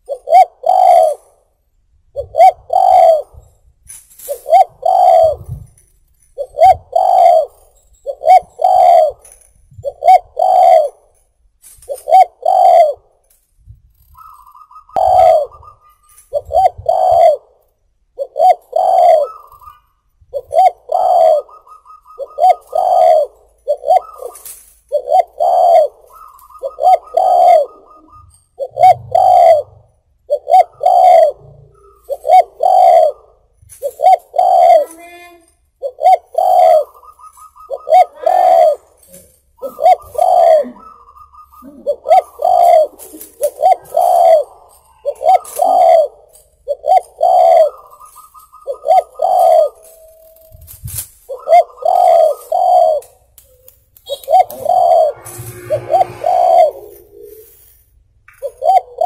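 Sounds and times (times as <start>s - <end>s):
dove cooing: 0.0s - 1.4s, 2.2s - 3.4s, 4.3s - 5.7s, 6.4s - 11.1s, 11.9s - 13.1s, 14.1s - 17.5s, 18.2s - 50.6s, 51.3s - 57.6s, 58.4s - 59.0s
high wavering tone: 30.6s - 33.2s, 49.0s - 57.7s.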